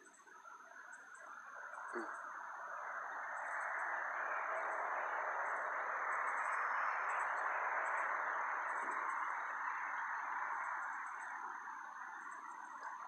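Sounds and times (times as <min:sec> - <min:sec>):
insects chirping: 0:00.0 - 0:13.0
outdoor ambience hiss: 0:00.0 - 0:13.0.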